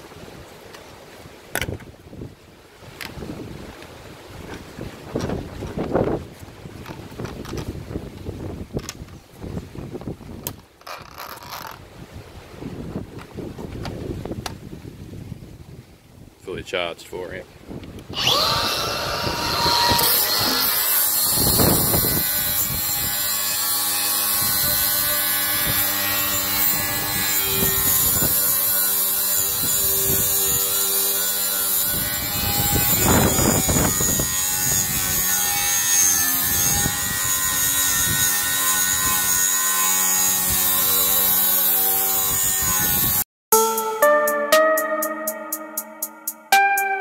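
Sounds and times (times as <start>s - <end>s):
angle grinder motor whine: 18.2s - 35.6s
disc rasping on steel: 19.2s - 33.5s.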